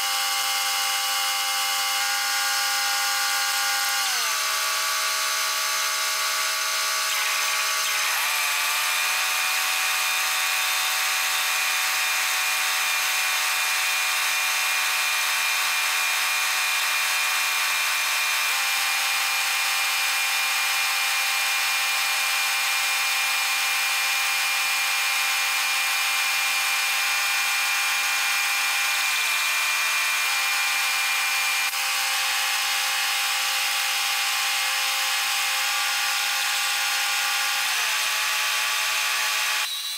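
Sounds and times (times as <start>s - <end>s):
welder engine running: 0.0s - 10.8s.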